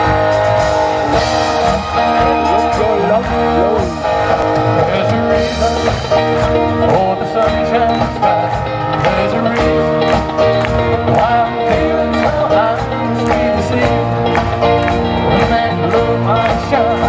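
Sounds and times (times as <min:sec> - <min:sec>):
bass guitar: 0:00.0 - 0:17.0
drums: 0:00.0 - 0:17.0
electric guitars: 0:00.0 - 0:17.0.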